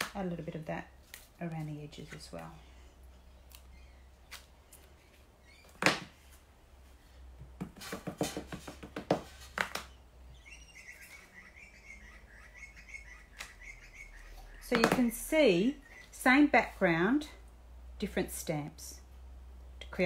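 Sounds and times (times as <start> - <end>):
faint wavering high chirping: 10.3 - 14.7.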